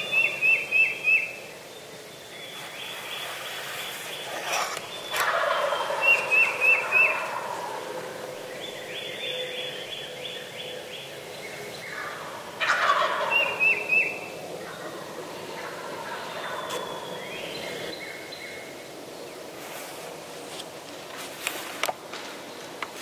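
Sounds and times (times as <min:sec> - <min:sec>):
songbird calls: 0:00.0 - 0:19.8
turkey gobbling: 0:05.0 - 0:09.3, 0:11.8 - 0:17.9.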